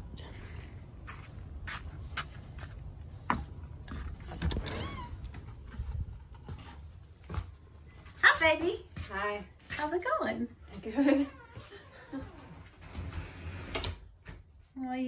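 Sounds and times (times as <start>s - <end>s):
footsteps: 0.0s - 13.4s
door squeak: 4.4s - 5.3s.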